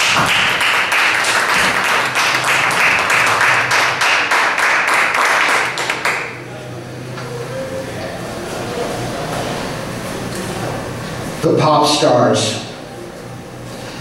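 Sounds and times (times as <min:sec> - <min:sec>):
audience clapping: 0:00.0 - 0:06.5.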